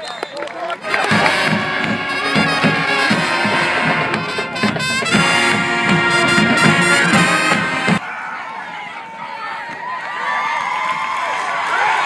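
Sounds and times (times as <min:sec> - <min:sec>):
brass band playing: 0:00.8 - 0:08.0
steady drum beat: 0:00.8 - 0:08.0.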